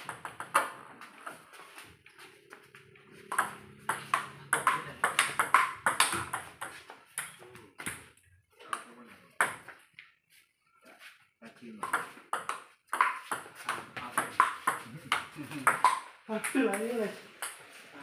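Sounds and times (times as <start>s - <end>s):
ping pong ball clicking: 3.3s - 7.4s, 11.8s - 13.8s.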